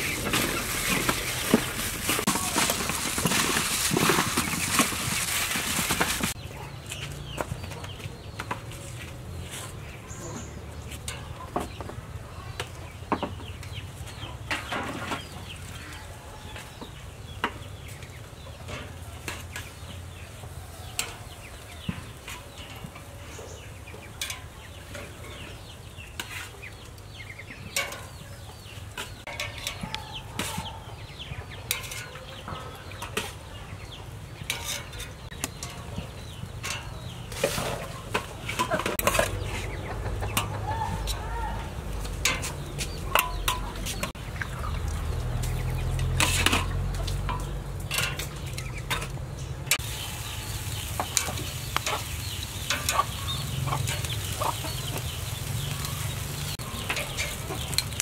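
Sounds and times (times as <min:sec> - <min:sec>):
chickens clucking: 0:00.0 - 0:58.0
tongs clinking on metal grill: 0:45.9 - 0:58.0.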